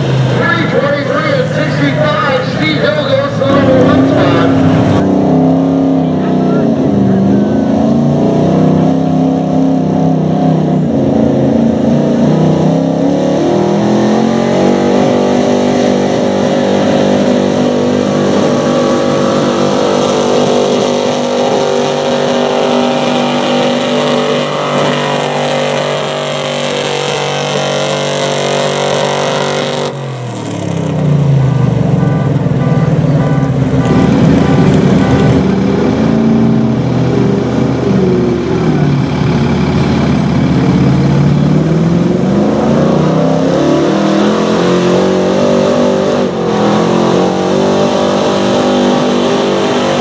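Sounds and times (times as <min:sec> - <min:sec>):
truck engine revving under load: 0:00.0 - 0:50.0.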